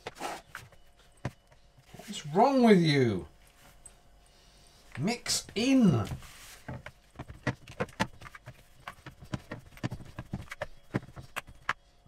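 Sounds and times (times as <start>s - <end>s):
hands kneading sticky dough: 5.0s - 11.8s.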